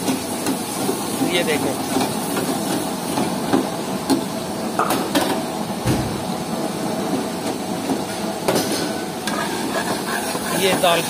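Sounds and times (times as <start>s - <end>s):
frying hiss: 0.0s - 11.0s
spatula scraping frying pan: 9.2s - 11.0s.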